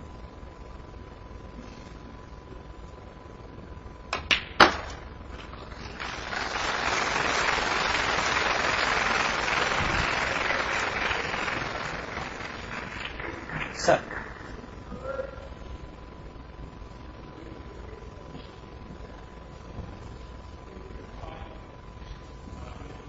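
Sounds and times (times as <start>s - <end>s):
audience applause: 5.6s - 14.8s.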